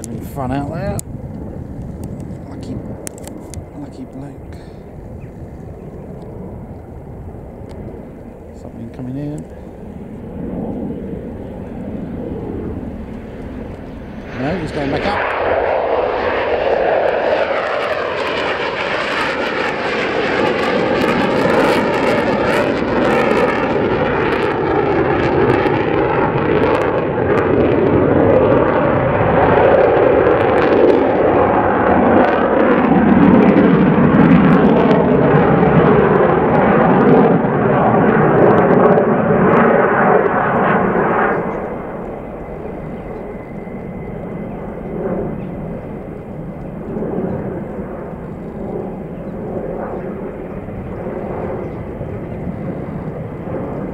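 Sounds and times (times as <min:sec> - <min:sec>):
jet engines passing overhead: 0:00.0 - 0:53.9.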